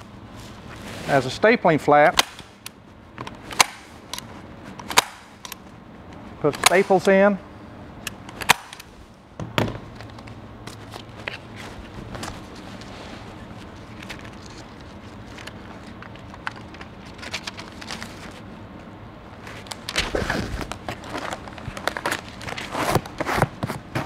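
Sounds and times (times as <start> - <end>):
foil tape crinkling and scraping: 10.1 - 18.4, 19.5 - 24.0.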